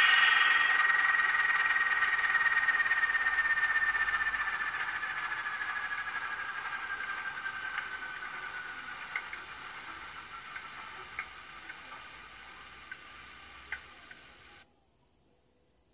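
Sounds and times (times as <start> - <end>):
sharp ticks: 0.0 - 14.6
thin electronic engine whine: 0.0 - 14.6.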